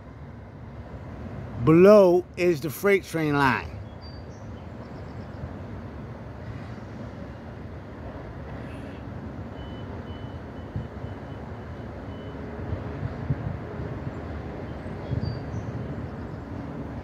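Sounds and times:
freight train rumbling over bridge: 0.0s - 17.0s.

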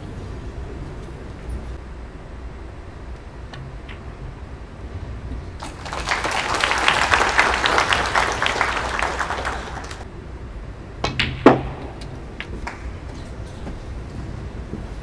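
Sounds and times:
audience applauding: 5.6s - 10.0s.

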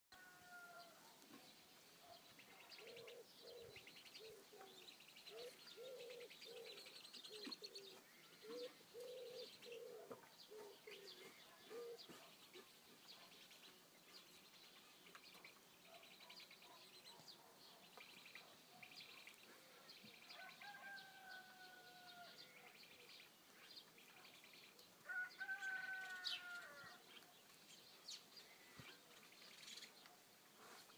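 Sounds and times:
drawn-out falling hen calls: 0.1s - 1.0s, 25.0s - 27.1s.

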